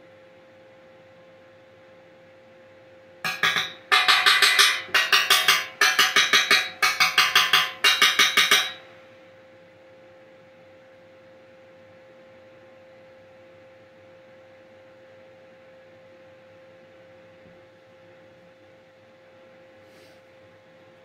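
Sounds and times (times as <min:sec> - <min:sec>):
hammer blows on steel: 0:03.3 - 0:08.9.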